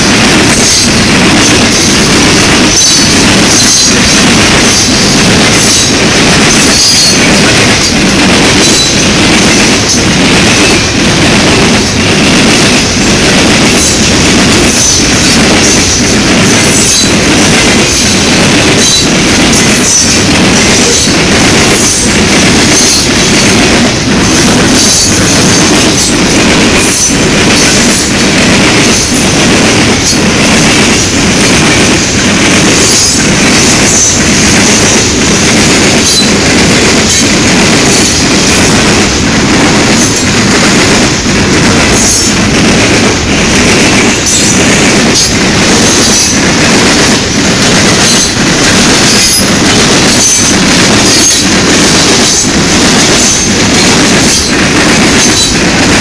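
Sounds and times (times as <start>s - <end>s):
train wheels clacking on track: 0.0s - 56.0s.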